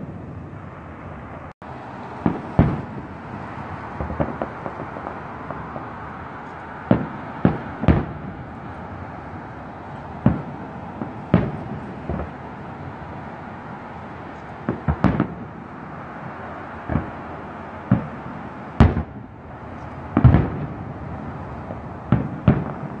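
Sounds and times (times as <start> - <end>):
firework shells bursting: 2.2 - 8.8, 21.4 - 23.0.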